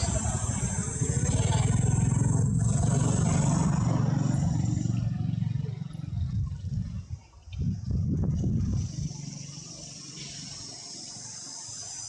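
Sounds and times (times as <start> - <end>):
engine low rumble: 0.0 - 12.0
steady high buzz: 7.6 - 12.0.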